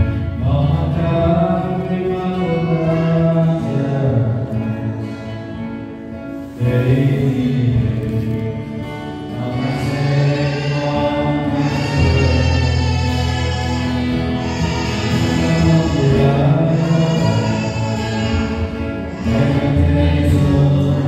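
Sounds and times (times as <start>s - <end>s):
group singing a worship song: 6.5s - 21.0s.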